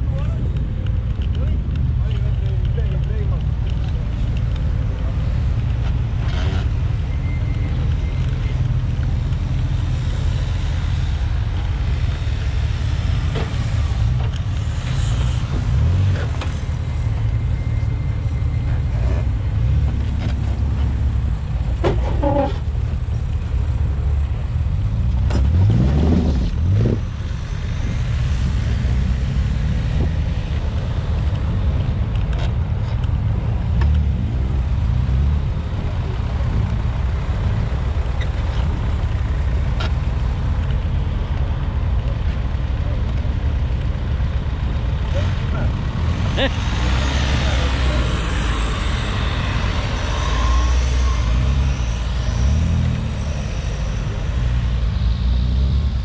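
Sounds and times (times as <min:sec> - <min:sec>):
car engine rumbling: 0:00.0 - 0:56.0
engine revving: 0:25.0 - 0:31.6, 0:45.0 - 0:56.0.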